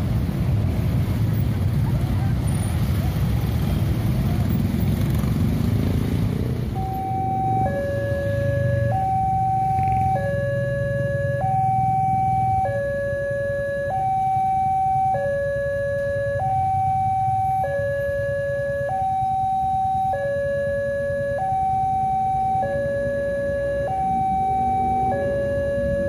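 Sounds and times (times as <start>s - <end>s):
two-tone crossing alarm: 6.7s - 26.0s.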